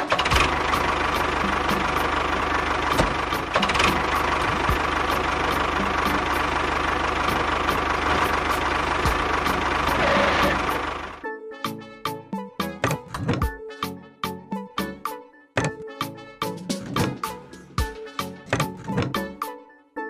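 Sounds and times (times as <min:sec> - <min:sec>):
tractor engine chugging: 0:00.0 - 0:11.2.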